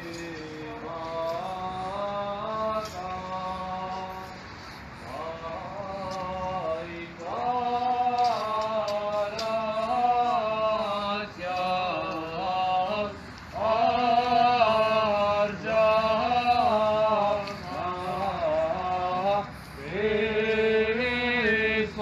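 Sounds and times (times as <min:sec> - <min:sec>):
man chanting a hymn: 0:00.0 - 0:22.0
singer breathing: 0:04.3 - 0:05.1, 0:19.4 - 0:19.8.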